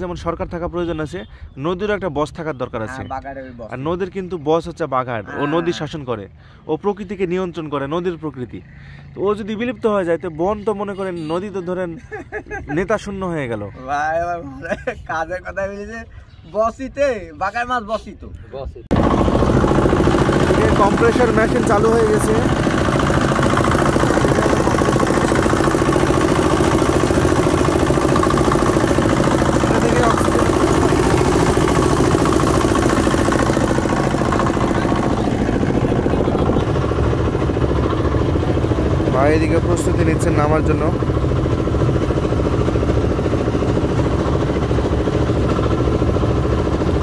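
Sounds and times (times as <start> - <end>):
air compressor chugging: 18.9 - 47.0.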